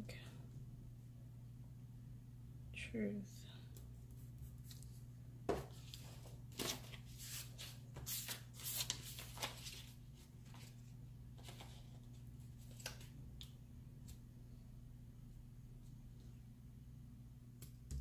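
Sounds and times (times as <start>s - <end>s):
paper rustling and crinkling: 5.6s - 13.5s.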